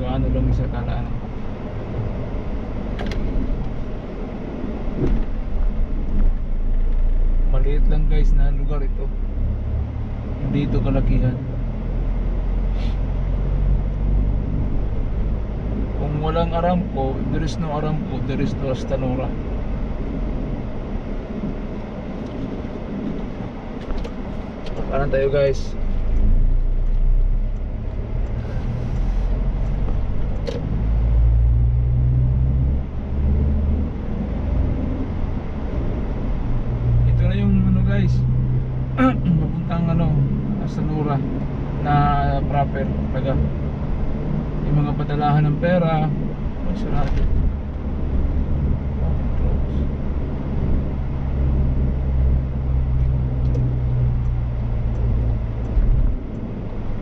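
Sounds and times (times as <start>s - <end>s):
car engine hum: 0.0s - 57.0s
road noise: 0.0s - 57.0s.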